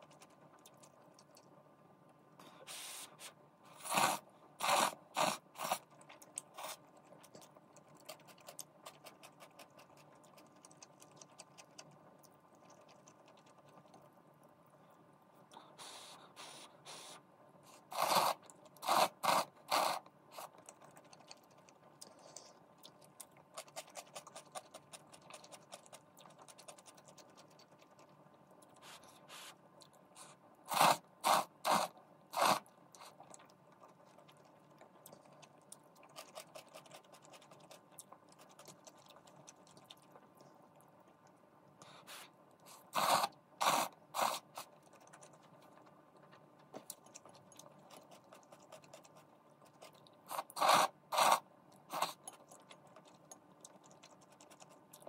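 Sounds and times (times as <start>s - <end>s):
faint chewing: 0.0s - 55.0s
noodles slurped: 2.8s - 14.0s, 17.7s - 28.1s, 30.2s - 40.4s, 41.9s - 45.4s, 46.9s - 55.0s.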